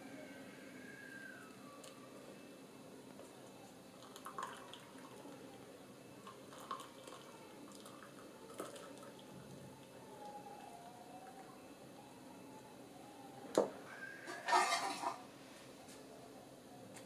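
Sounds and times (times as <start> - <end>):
liquid trickling and dripping: 3.9 - 5.6, 6.2 - 10.4.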